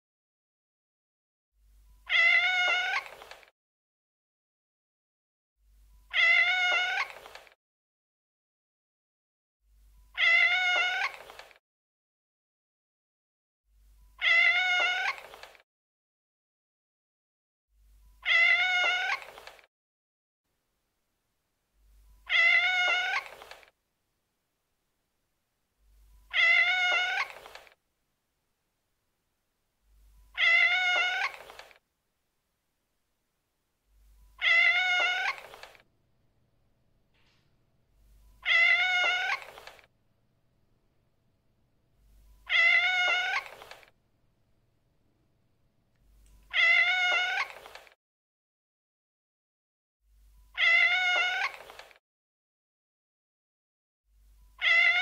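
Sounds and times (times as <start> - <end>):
cat meowing: 2.0 - 3.3, 6.1 - 7.4, 10.1 - 11.4, 14.2 - 15.4, 18.2 - 19.5, 22.2 - 23.7, 26.3 - 27.8, 30.3 - 31.8, 34.4 - 35.8, 38.4 - 39.9, 42.4 - 43.9, 46.5 - 48.0, 50.6 - 51.9, 54.6 - 55.0.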